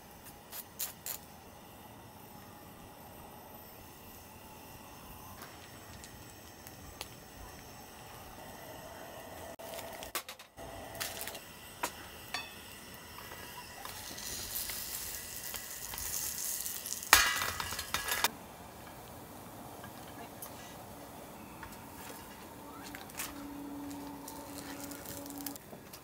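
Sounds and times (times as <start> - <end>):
food sizzling in a pan: 11.0 - 18.3.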